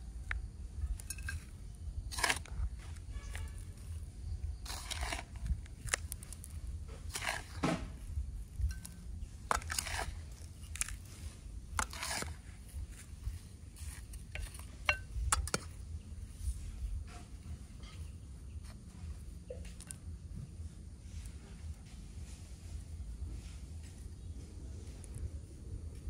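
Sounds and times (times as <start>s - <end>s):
rustling scrapes: 0.8s - 19.9s.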